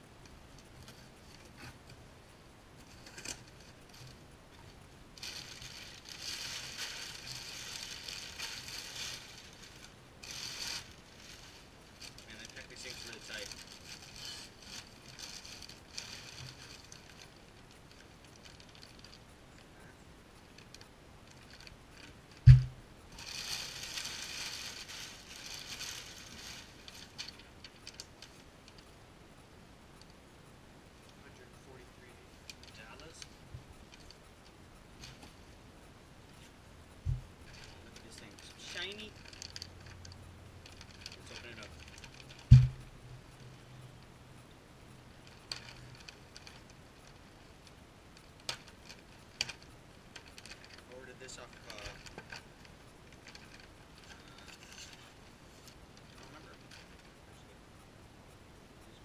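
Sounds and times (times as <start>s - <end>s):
packing paper rustling and crinkling: 5.2s - 19.2s, 20.5s - 28.8s, 36.4s - 43.5s, 45.2s - 57.2s
loud thump of object set down: 22.5s - 22.7s, 42.5s - 42.8s.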